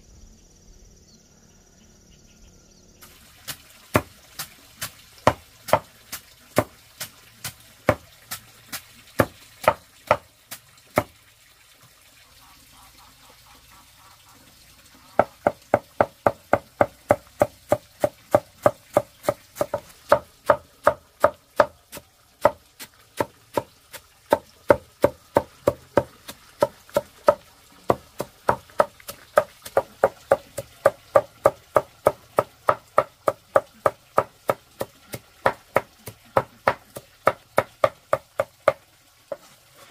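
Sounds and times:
chopping strikes: 3.5s - 11.1s.

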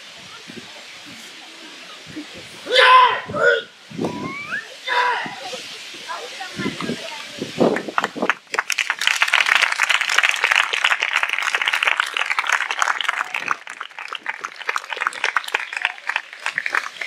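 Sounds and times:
audience applauding: 6.8s - 17.0s.

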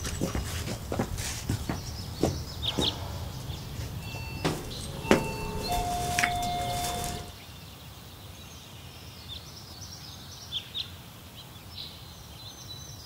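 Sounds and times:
doorbell chime: 2.7s - 7.3s.

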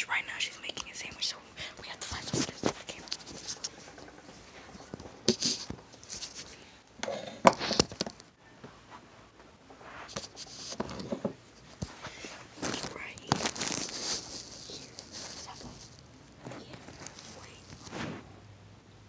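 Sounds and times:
fabric rubbing over microphone: 9.8s - 10.8s, 11.8s - 18.3s.

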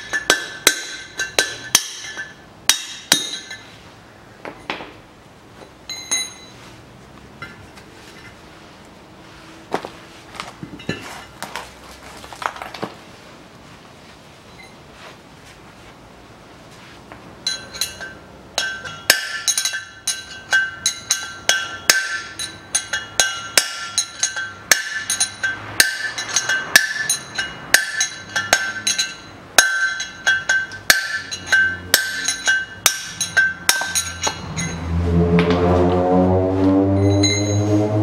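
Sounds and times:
hammer striking metal with ringing: 0.0s - 3.7s, 5.9s - 6.6s, 17.4s - 35.6s, 37.0s - 37.7s.

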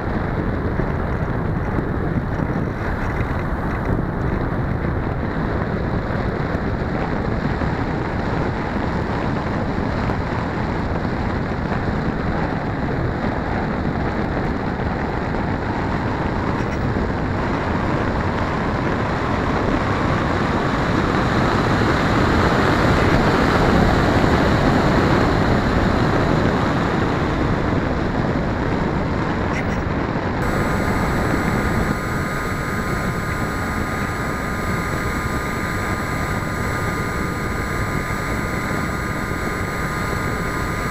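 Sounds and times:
model plane motor and propeller: 0.0s - 10.4s, 30.4s - 40.9s
wind over microphone: 0.0s - 22.3s.

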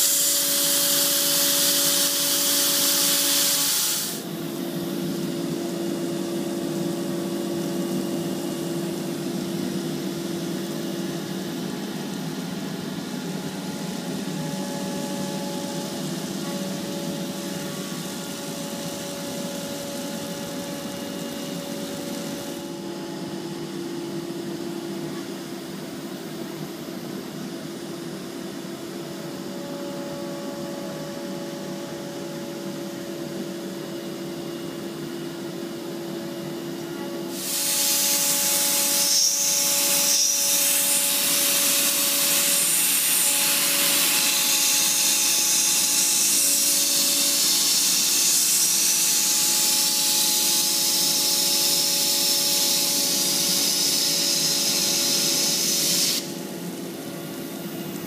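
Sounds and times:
router bit hissing through plastic: 0.0s - 4.2s, 37.3s - 56.4s
cnc router spindle humming: 0.0s - 58.0s.

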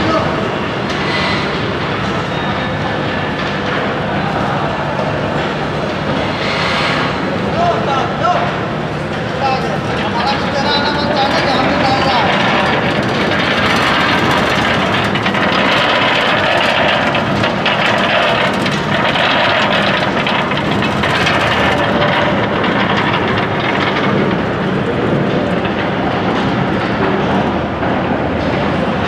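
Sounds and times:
machine mechanical clatter: 0.0s - 29.0s
nuts rattling along metal chute: 9.6s - 26.8s.

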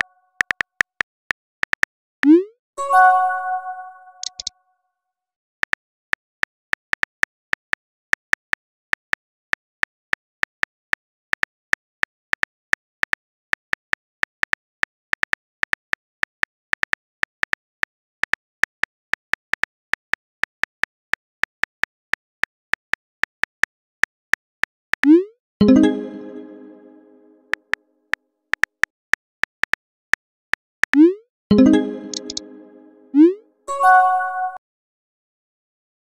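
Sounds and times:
phone keyboard clicks: 4.2s - 4.5s, 32.0s - 32.5s.

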